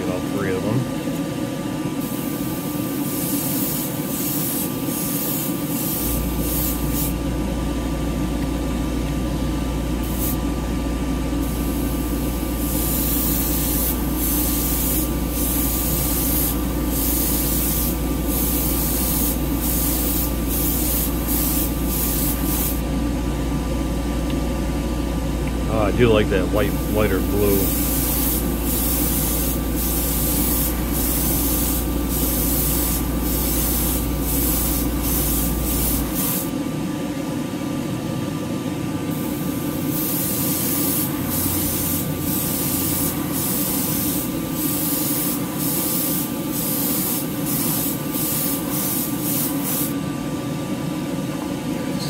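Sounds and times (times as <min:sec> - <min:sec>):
exhaust fan rushing: 0:00.0 - 0:49.3
airbrush hissing bursts: 0:02.0 - 0:07.2, 0:10.0 - 0:10.4, 0:11.4 - 0:22.8, 0:26.6 - 0:36.5, 0:39.1 - 0:50.0.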